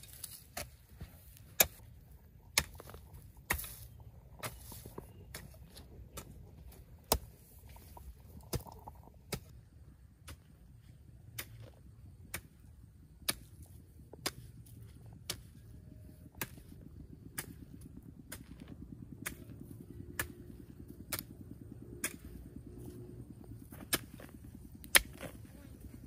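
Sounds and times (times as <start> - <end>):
hoe chopping into ground: 2.5 - 9.5, 22.0 - 25.7.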